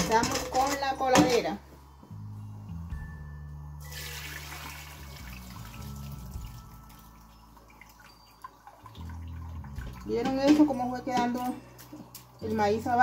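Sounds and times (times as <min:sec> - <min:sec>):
liquid pouring through strainer: 0:03.9 - 0:06.7.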